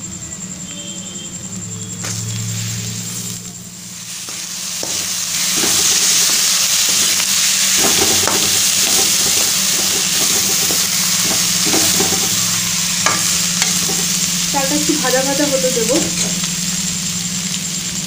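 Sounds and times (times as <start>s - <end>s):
rice sizzling in oil: 1.8s - 18.0s
spoon scraping pan: 4.1s - 14.2s.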